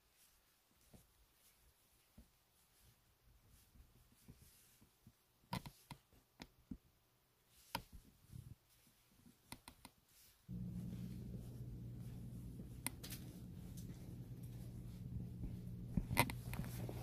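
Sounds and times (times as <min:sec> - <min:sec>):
faint clicks and taps: 0:04.2 - 0:06.9, 0:09.2 - 0:17.0.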